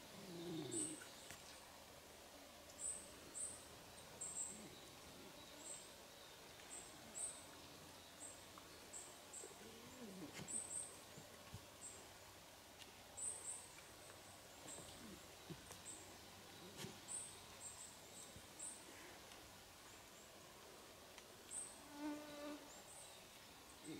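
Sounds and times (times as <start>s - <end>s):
faint clicks: 21.1s - 21.6s.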